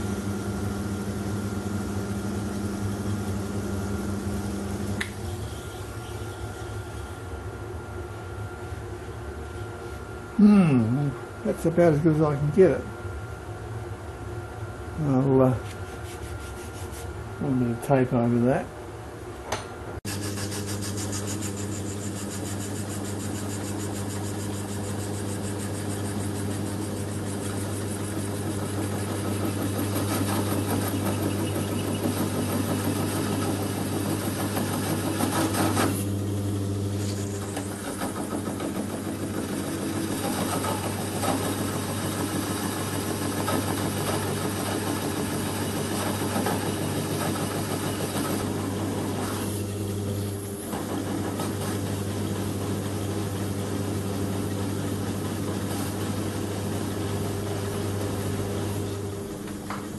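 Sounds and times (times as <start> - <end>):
lathe machine hum: 0.0 - 6.0, 20.0 - 59.9.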